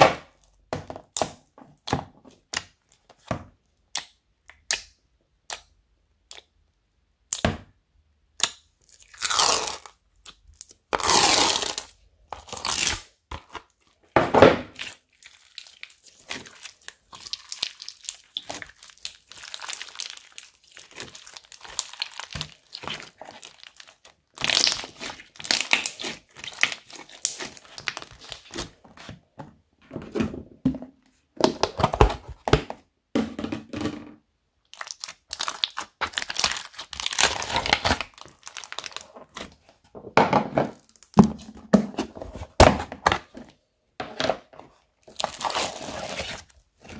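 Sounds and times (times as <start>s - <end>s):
beads crunching in slime: 8.9s - 10.0s, 10.6s - 13.1s, 14.8s - 28.6s, 34.7s - 39.1s, 45.0s - 46.9s
slime squelching and popping: 14.7s - 28.8s, 34.7s - 39.5s, 45.0s - 46.9s.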